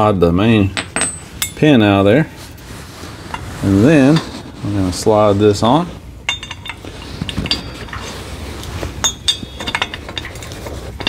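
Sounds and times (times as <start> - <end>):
metal adapter clinking and knocking: 6.3 - 8.1, 9.0 - 11.0.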